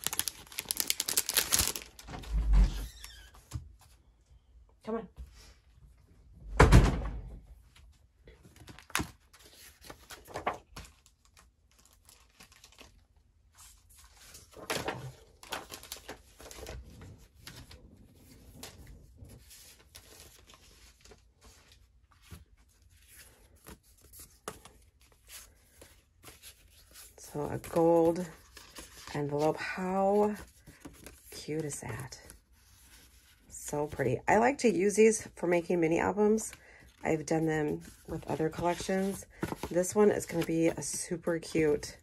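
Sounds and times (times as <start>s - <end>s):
plastic packaging ripping: 0.0s - 2.0s
rustling paper: 0.0s - 2.1s, 8.5s - 34.0s, 36.3s - 41.1s
crinkling plastic: 0.0s - 2.2s.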